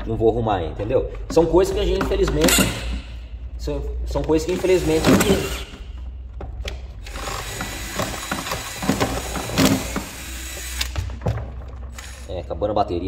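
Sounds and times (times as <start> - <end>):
tool knocking against work: 1.2 - 3.1
cordless screwdriver bogging: 7.0 - 11.0, 11.9 - 12.4.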